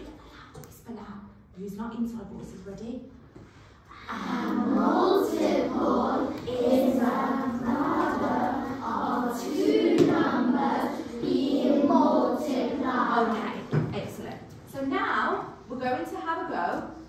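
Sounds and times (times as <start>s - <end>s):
children chanting in unison: 3.9s - 13.7s.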